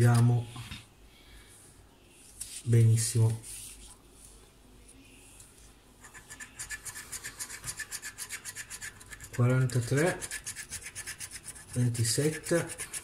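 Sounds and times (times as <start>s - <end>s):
scratch card coating scraped: 6.0s - 13.0s.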